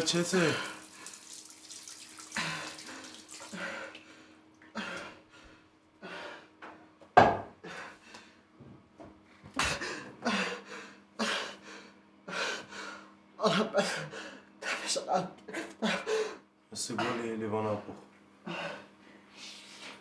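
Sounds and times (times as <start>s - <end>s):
water splashing at sink: 0.0s - 4.2s
man breathing heavily and gasping: 2.3s - 6.8s, 9.6s - 16.5s, 18.4s - 20.0s.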